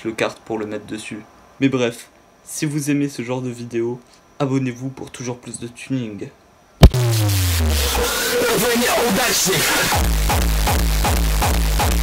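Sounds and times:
kick-drum beat over deep bass: 6.8s - 8.2s, 9.9s - 12.0s
glitchy sliding electronic tones: 6.8s - 10.0s.

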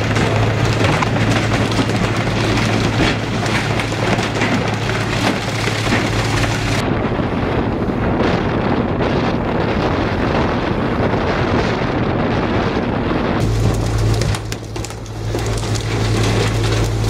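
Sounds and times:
water and fish spattering down chute: 0.0s - 6.8s, 13.4s - 17.0s
low engine hum: 0.0s - 17.0s.

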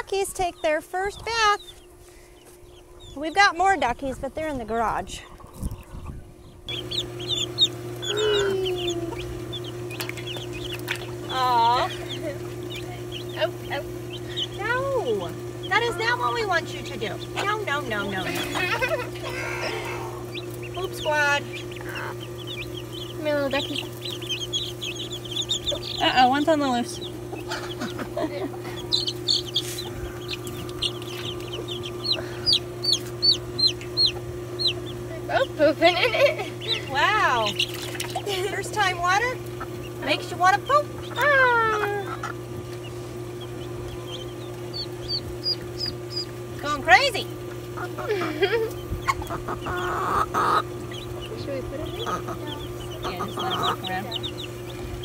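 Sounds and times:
chicks and ducklings peeping: 0.0s - 55.0s
steady low hum: 0.0s - 55.0s
chicken call: 6.7s - 13.6s, 18.3s - 20.4s.

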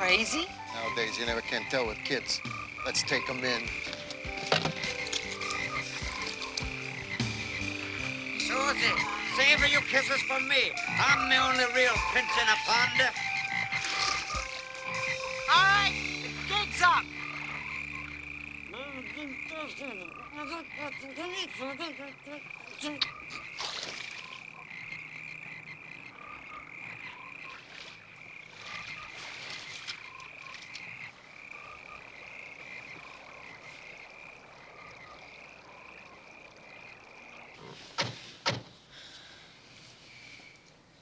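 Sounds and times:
frogs croaking: 0.0s - 41.0s
feet splashing in shallow water: 22.7s - 24.6s, 27.4s - 30.9s.

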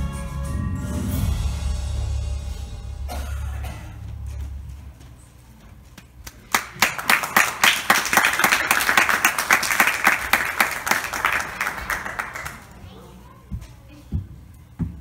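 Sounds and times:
audience applauding: 6.2s - 12.8s.

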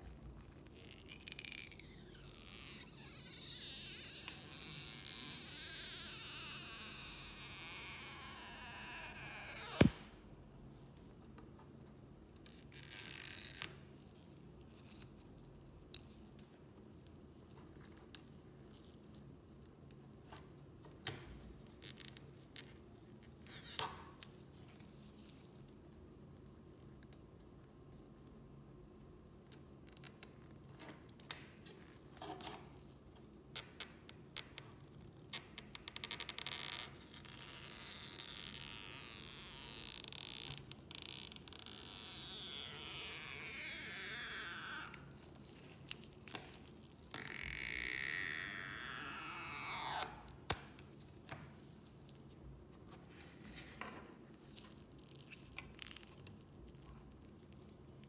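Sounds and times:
adhesive strip squeaking: 0.4s - 10.0s, 35.3s - 46.5s, 47.1s - 50.6s.

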